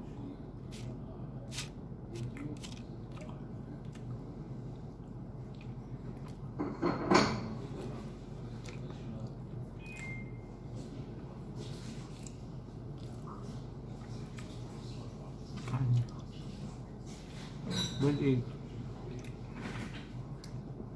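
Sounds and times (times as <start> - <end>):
steady low hum: 0.0 - 20.9
person chewing: 0.6 - 6.5, 8.4 - 10.2, 11.6 - 14.8, 19.0 - 19.6.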